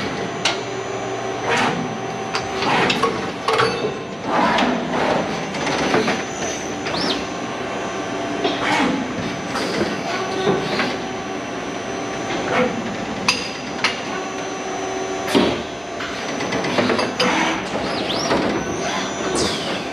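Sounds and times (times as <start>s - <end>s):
steady machine hum: 0.0s - 19.9s.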